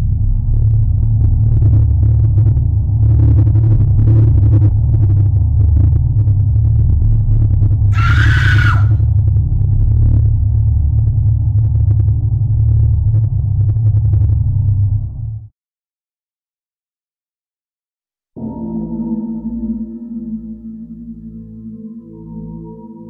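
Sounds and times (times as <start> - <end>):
low rumbling drone: 0.0 - 15.5
shrill screech: 7.9 - 9.0.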